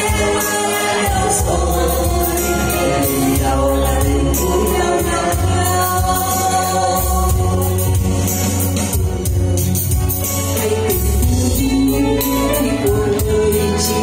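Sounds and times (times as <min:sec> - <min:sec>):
woman and man singing duet: 0:00.0 - 0:08.2, 0:10.6 - 0:14.0
amplified backing music: 0:00.0 - 0:14.0.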